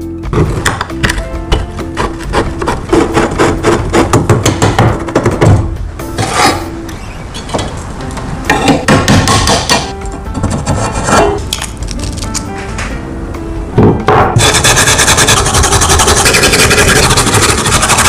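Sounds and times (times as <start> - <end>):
background music: 0.0 - 18.0
wood rubbing and scraping on metal: 1.7 - 5.2, 10.3 - 11.5, 14.3 - 18.0.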